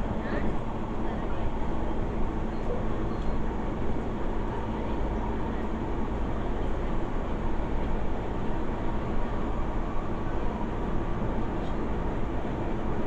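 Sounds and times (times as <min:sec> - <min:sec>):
train carriage rumble: 0:00.0 - 0:13.0.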